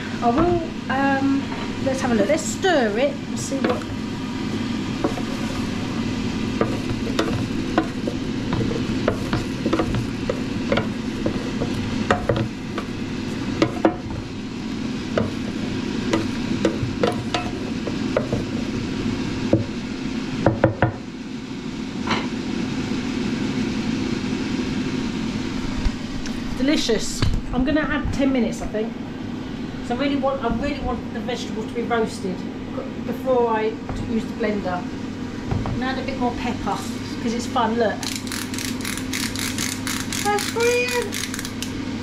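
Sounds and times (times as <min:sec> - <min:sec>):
wooden spatula scraping basket: 0:04.9 - 0:14.3.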